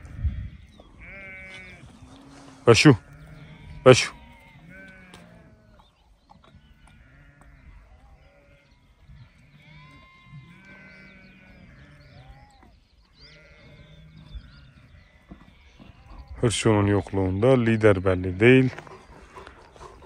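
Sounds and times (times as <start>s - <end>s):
sheep bleating: 1.0s - 5.7s, 6.6s - 12.6s, 13.2s - 14.1s.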